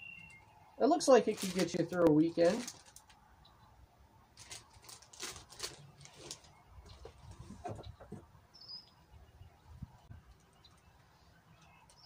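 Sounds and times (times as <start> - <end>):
plastic packaging crinkling: 1.1 - 3.2, 4.4 - 6.6.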